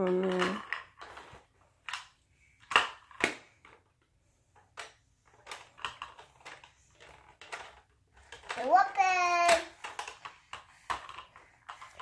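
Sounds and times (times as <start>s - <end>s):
plastic toy pieces clicking: 4.8s - 12.0s.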